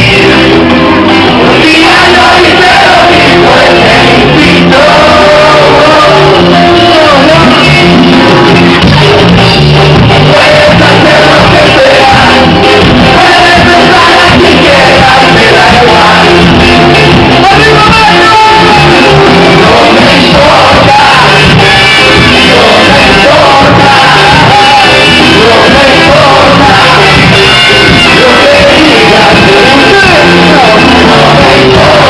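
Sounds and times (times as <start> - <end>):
electric guitars: 0.0 - 32.0
lead singer singing: 0.0 - 32.0
live ska band playing: 0.0 - 32.0.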